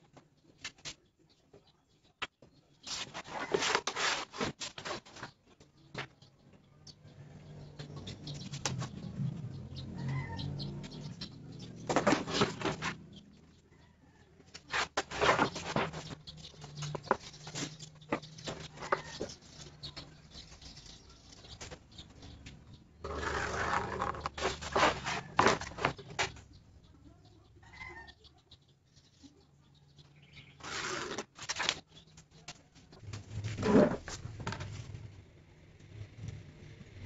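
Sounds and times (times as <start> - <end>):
pen scraping along ruler: 23.1 - 26.0.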